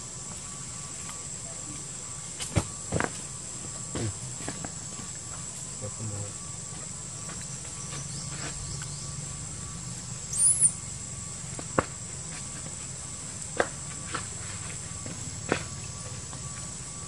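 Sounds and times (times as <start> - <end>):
insect trill: 0.0 - 17.0
high chirp: 7.9 - 10.8.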